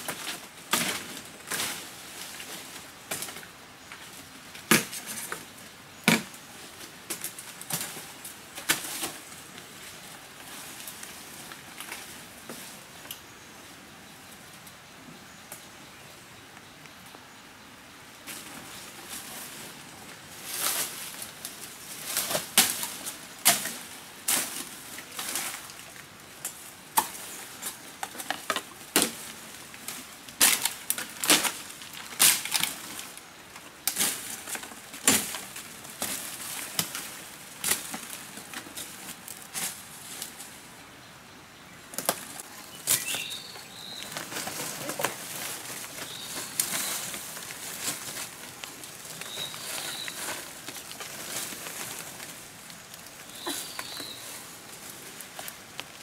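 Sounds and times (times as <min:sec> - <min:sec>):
dry leaves and twigs rustling: 0:00.0 - 0:13.7, 0:18.2 - 0:40.8, 0:41.7 - 0:56.0
faint high bird chirps: 0:49.2 - 0:50.3, 0:53.3 - 0:54.4.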